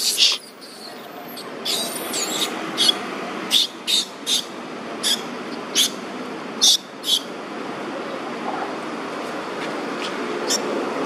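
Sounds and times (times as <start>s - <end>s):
baby monkey squeaking: 0.0s - 6.0s, 6.6s - 7.3s.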